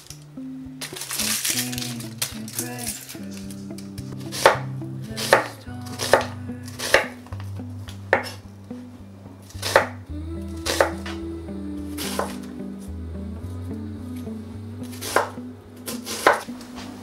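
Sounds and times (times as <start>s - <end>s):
knife chopping on cutting board: 8.1s - 8.4s, 16.1s - 16.4s.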